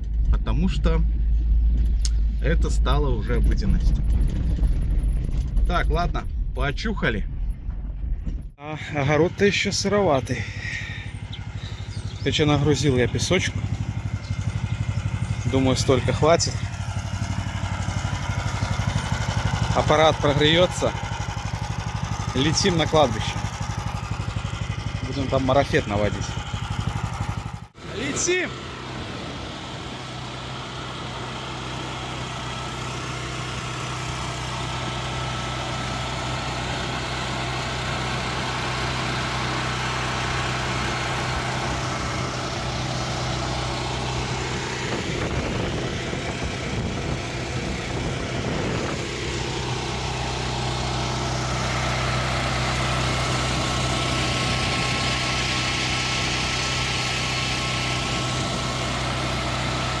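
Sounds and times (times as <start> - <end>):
small petrol engine running: 8.8 - 60.0.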